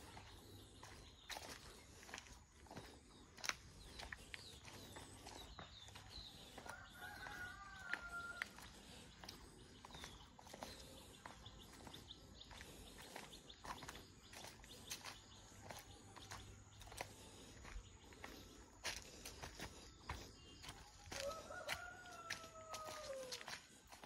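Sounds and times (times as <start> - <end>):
distant rooster crowing: 6.6 - 8.7, 21.0 - 23.6
footsteps crunching on dry leaves: 12.5 - 24.0.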